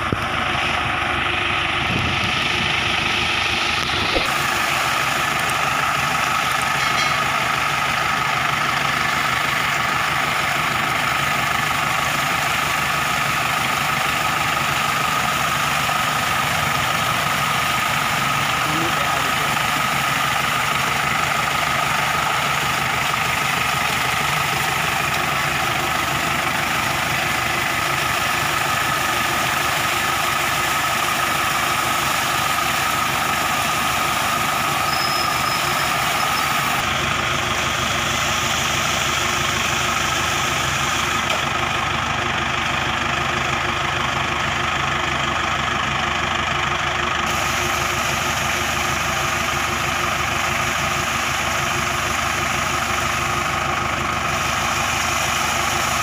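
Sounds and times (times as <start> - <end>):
engine idling: 0.0 - 56.0
water jet gushing and splashing: 2.3 - 36.9, 47.3 - 56.0.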